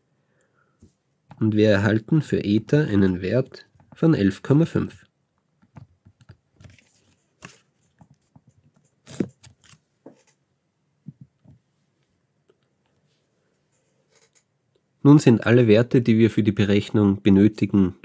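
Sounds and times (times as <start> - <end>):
stylus tapping and scratching screen: 5.4 - 10.4, 13.7 - 14.9.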